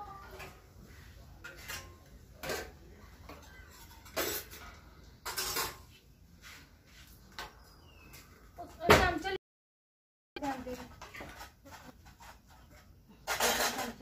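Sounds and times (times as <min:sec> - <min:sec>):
steel plates and bowls clattering: 0:01.4 - 0:05.9, 0:11.1 - 0:14.0.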